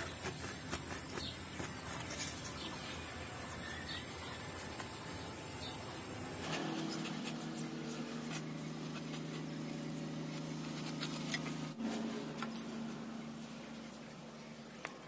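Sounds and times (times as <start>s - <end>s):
blade scraping through fruit: 0.0s - 2.9s, 6.4s - 13.8s
steady low hum: 0.0s - 15.0s.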